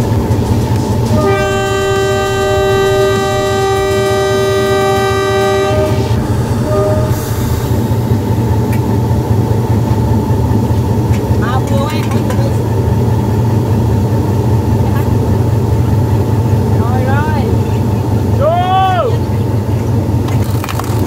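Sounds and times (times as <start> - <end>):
train rumble: 0.0 - 21.0
train air horn: 1.0 - 7.8.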